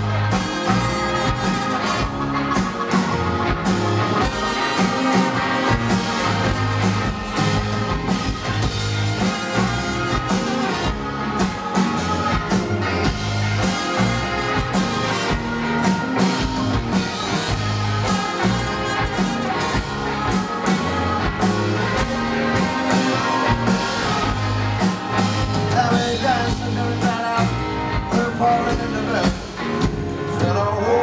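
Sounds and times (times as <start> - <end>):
live rock band playing: 0.0 - 31.0
person singing: 9.2 - 29.6, 30.2 - 31.0.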